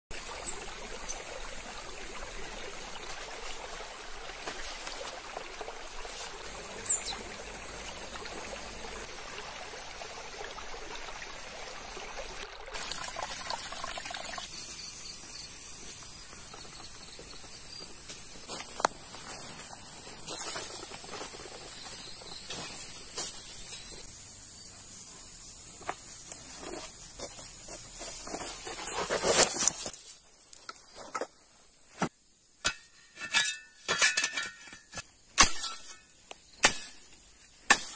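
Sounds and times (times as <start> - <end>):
stream trickling over rocks: 0.1 - 14.6.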